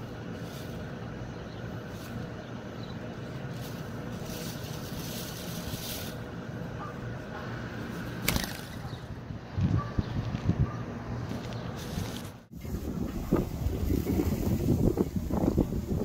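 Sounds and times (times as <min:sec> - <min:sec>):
low outdoor rumble: 0:00.0 - 0:16.0
dove wing clap: 0:08.2 - 0:09.0.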